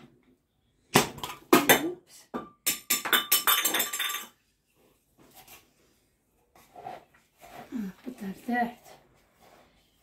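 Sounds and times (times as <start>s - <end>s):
glass jar clinking: 2.7s - 4.4s.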